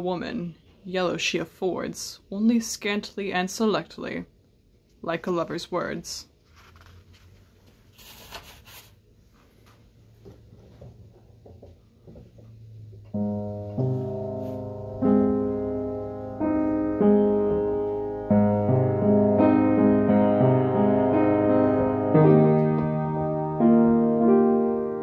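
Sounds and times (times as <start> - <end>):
slow piano chords: 12.5 - 25.0.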